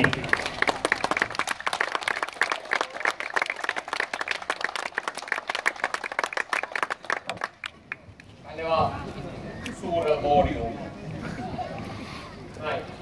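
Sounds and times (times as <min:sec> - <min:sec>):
crowd applauding: 0:00.0 - 0:08.3.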